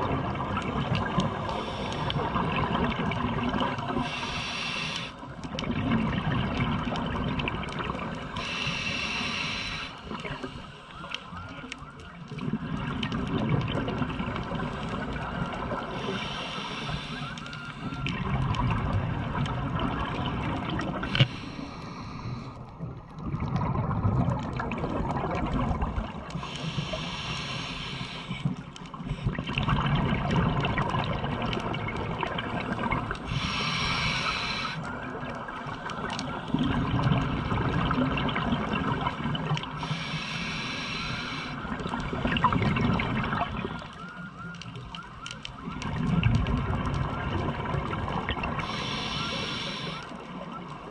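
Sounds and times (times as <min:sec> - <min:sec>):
gurgle of exhaled bubbles: 0:00.0 - 0:04.2, 0:05.4 - 0:08.5, 0:12.2 - 0:16.3, 0:17.7 - 0:21.5, 0:22.7 - 0:27.1, 0:28.4 - 0:50.9
diver breathing through regulator: 0:01.5 - 0:02.4, 0:04.0 - 0:05.2, 0:08.4 - 0:11.0, 0:15.9 - 0:18.0, 0:21.0 - 0:22.6, 0:26.4 - 0:28.6, 0:33.2 - 0:34.9, 0:39.8 - 0:41.7, 0:48.6 - 0:50.2.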